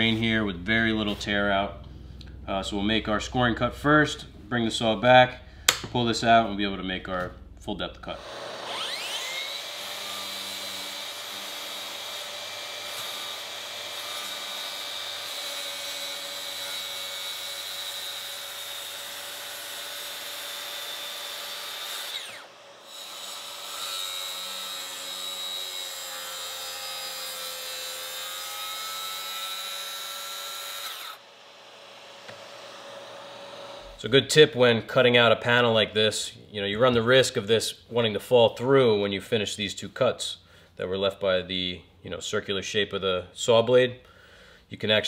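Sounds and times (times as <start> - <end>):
track saw cutting plywood: 8.2 - 34.0.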